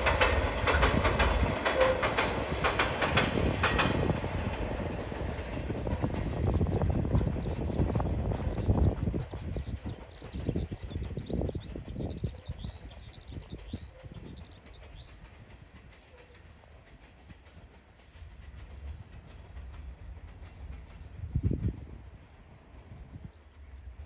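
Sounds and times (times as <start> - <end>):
freight train rumbling: 0.0 - 24.0
birds chirping: 6.1 - 15.5.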